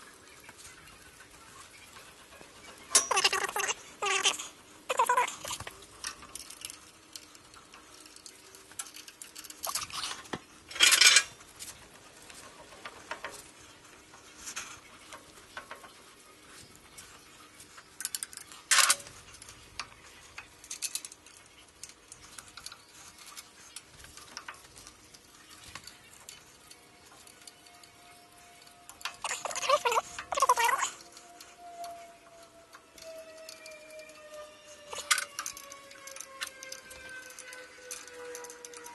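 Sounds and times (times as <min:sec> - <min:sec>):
metal parts clinking and rattling: 0:02.3 - 0:11.8, 0:17.7 - 0:32.0, 0:33.0 - 0:38.9.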